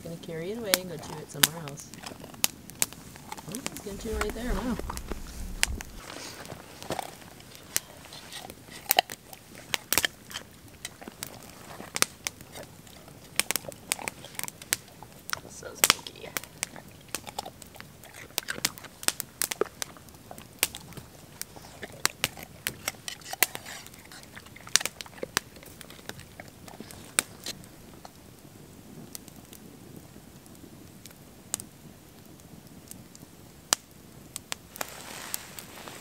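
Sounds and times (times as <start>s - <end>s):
dog crunching a carrot: 0.7s - 28.2s.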